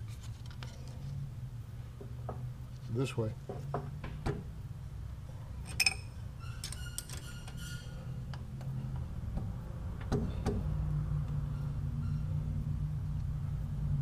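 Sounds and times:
steady low hum: 0.0s - 14.0s
small metallic clinks: 5.6s - 7.6s.

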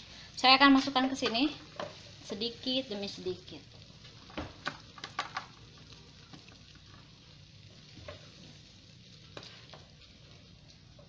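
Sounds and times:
wooden spatula scraping a pan: 9.3s - 10.2s.

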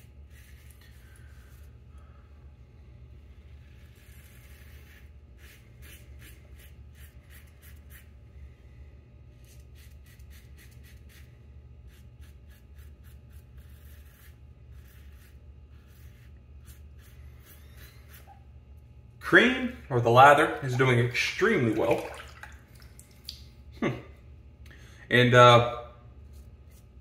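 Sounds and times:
razor scraping stubble: 3.4s - 8.1s, 9.4s - 18.4s.

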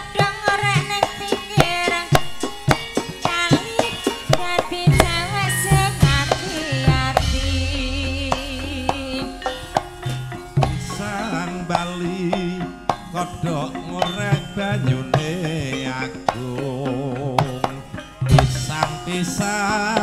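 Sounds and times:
gamelan music: 0.0s - 20.0s
hand drum strokes: 0.0s - 20.0s
metallophone tones ringing: 0.0s - 20.0s
low gong tone: 4.9s - 11.6s.

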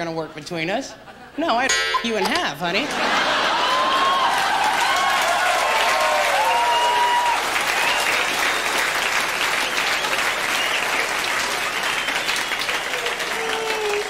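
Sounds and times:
audience clapping: 3.2s - 14.0s.

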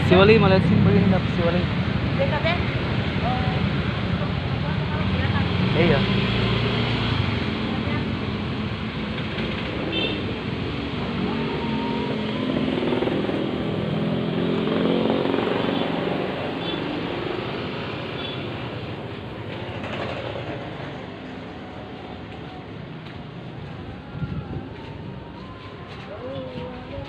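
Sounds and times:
motorbike engine passing by: 10.6s - 21.2s.

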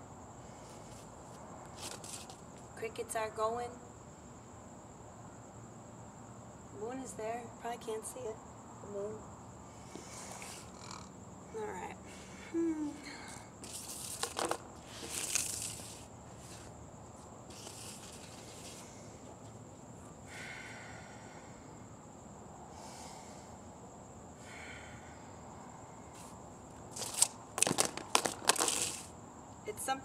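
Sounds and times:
crickets chirping: 0.0s - 30.0s
hula hoop clattering: 27.0s - 29.1s.

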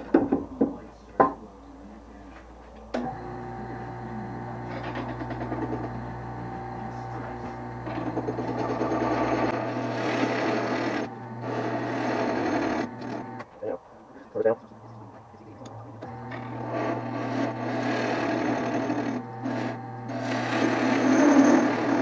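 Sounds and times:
lathe motor humming: 2.9s - 22.0s
turning tool cutting wood: 3.0s - 13.5s, 15.9s - 22.0s.

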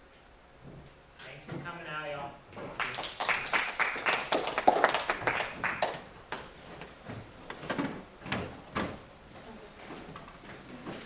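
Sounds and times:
people applauding: 2.7s - 6.5s.

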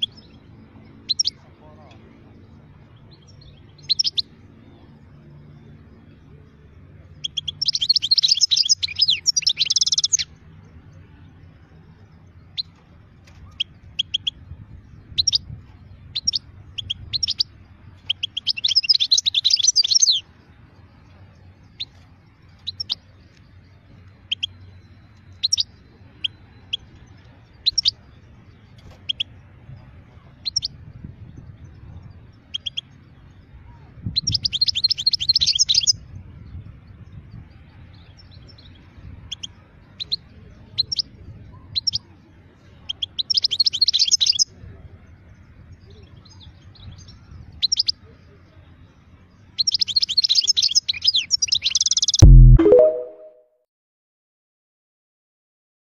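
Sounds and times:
goldfinch twittering song: 0.0s - 1.4s, 2.4s - 4.4s, 7.2s - 10.4s, 13.4s - 21.0s, 21.6s - 29.5s, 42.9s - 44.4s, 49.3s - 53.3s
sharp bird call notes: 52.2s - 53.4s.

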